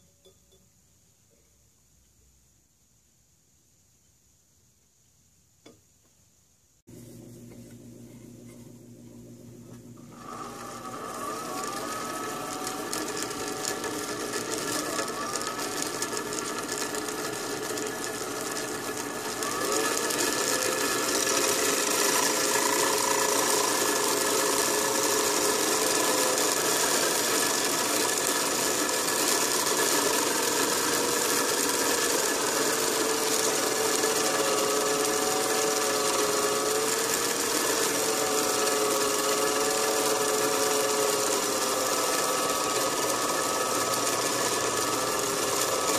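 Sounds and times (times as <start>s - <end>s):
cutter motor whining: 9.9s - 45.9s
cutter cutting metal: 10.1s - 45.9s.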